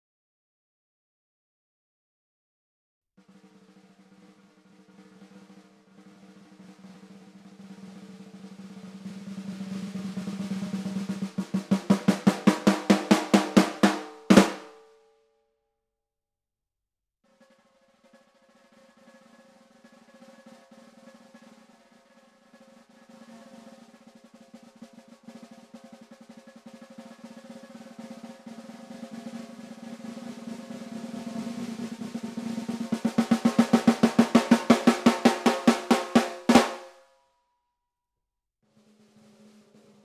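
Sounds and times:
loud snare drum strokes: 3.2 - 14.8, 17.5 - 37.0, 38.7 - 40.0
snare drum roll: 3.2 - 14.8, 18.0 - 37.0, 38.7 - 40.0.

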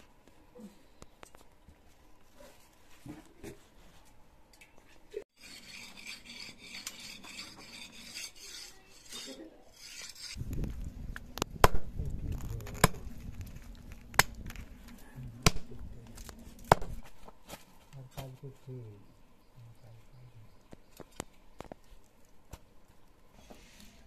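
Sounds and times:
soft rasping rub: 5.4 - 10.4.

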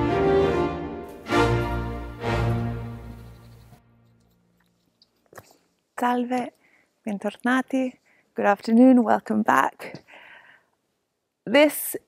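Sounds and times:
instrumental theme music: 0.0 - 4.5.

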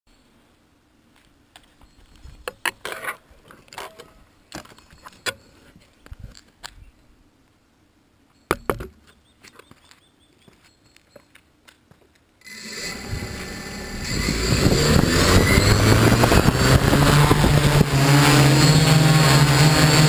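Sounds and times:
rig knocking on asphalt: 8.5 - 9.0.

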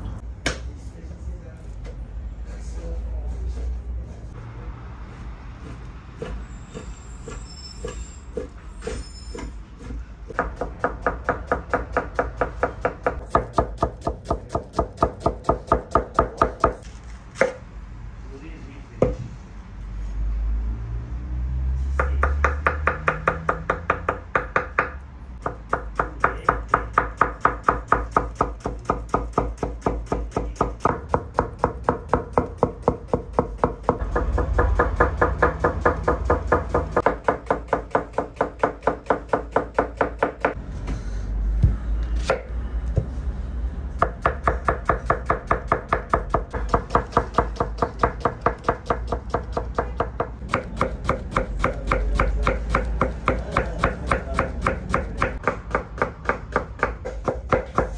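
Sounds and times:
knife chopping onions on wooden board: 0.4 - 0.7, 5.6 - 7.4, 9.8 - 17.6, 22.0 - 40.6, 44.0 - 57.9.

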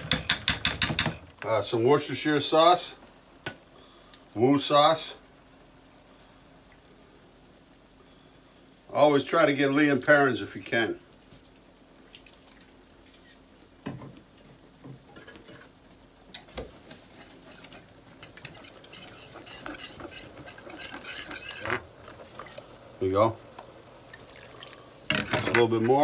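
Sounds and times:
whisk scraping a metal skillet: 17.1 - 21.9.

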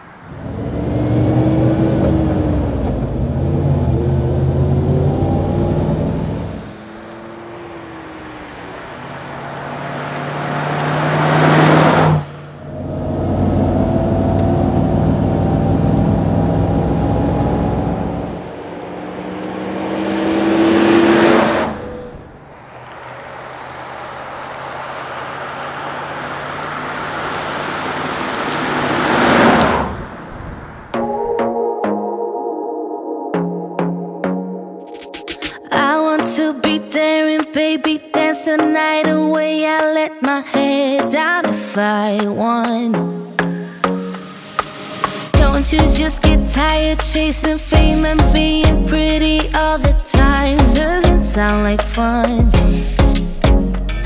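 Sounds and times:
car engine running: 0.3 - 30.0, 44.9 - 54.0.

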